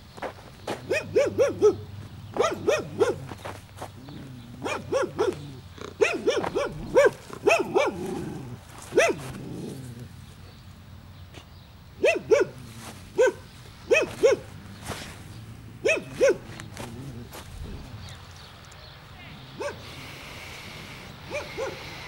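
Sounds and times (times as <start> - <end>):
dog barking: 0.8 - 3.4, 4.6 - 9.4, 12.0 - 14.6, 15.8 - 17.3, 19.6 - 19.9, 21.3 - 22.0.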